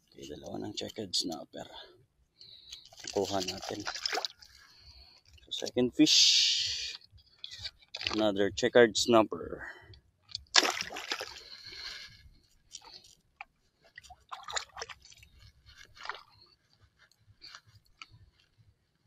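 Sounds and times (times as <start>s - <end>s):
handling clicks and rustles: 2.5s - 4.6s
shallow water sloshing: 2.6s - 5.6s, 10.4s - 13.2s, 13.8s - 16.5s.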